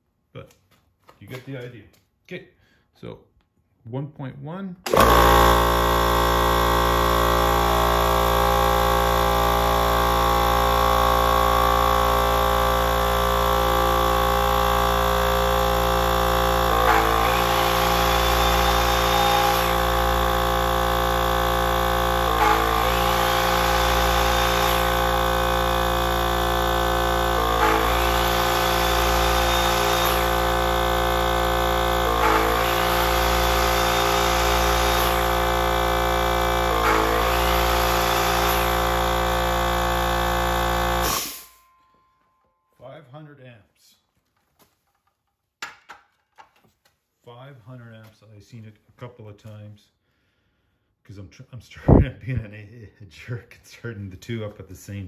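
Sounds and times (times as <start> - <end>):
motor whine spinning up: 4.9 - 41.7, 51.9 - 52.1
inverter hum: 4.9 - 41.8.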